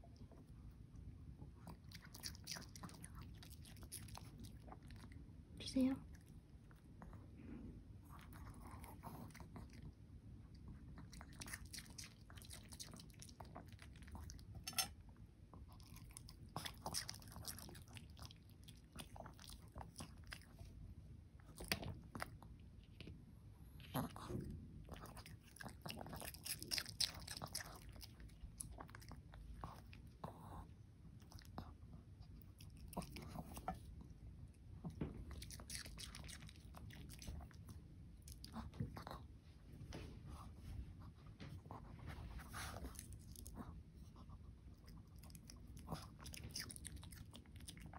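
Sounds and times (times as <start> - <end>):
dog chewing food: 1.5 - 5.3, 10.6 - 20.8, 21.4 - 34.1, 34.8 - 39.3, 44.7 - 47.9.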